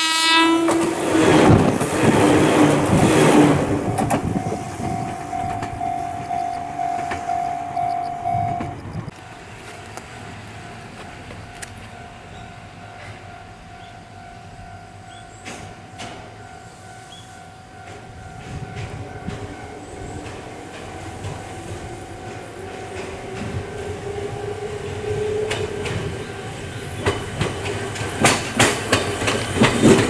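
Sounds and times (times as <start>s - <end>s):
distant train: 0.0s - 30.0s
electric train passing close: 0.0s - 30.0s
high ringing tone: 3.8s - 9.1s.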